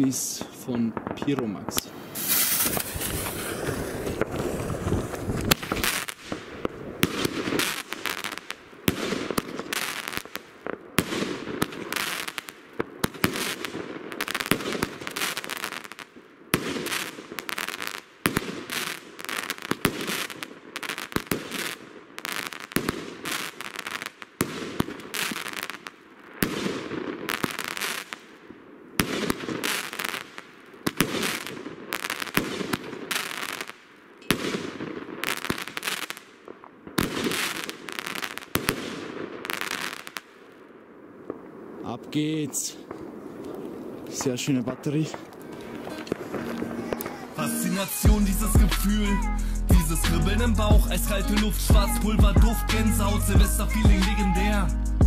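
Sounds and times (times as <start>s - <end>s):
firework launch bangs and bursts: 1.0s - 28.3s, 29.0s - 40.4s.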